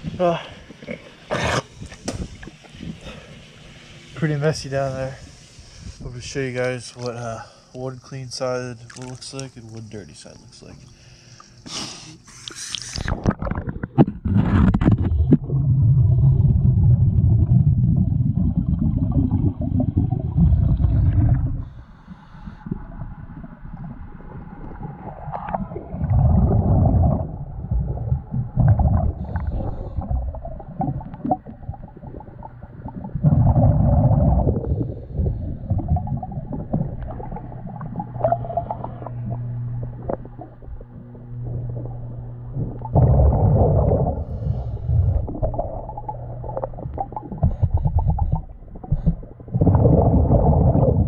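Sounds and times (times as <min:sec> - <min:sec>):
diver inhaling through regulator: 0:05.1 - 0:06.0, 0:10.9 - 0:13.2, 0:20.4 - 0:22.9, 0:29.0 - 0:30.3, 0:33.6 - 0:35.9, 0:42.7 - 0:45.5
splash into water: 0:08.9 - 0:09.3
exhaled bubbles gurgling: 0:12.9 - 0:51.0.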